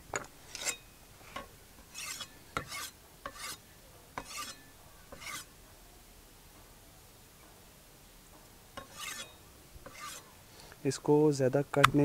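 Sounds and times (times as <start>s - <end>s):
knife blade scraping: 0.1s - 3.6s, 4.2s - 5.5s, 8.8s - 10.3s.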